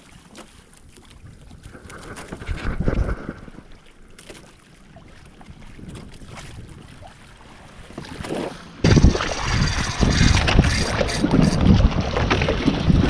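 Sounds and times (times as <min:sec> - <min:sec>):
water rushing along hull: 0:00.0 - 0:13.0
wind buffeting microphone: 0:01.2 - 0:03.7, 0:05.4 - 0:13.0.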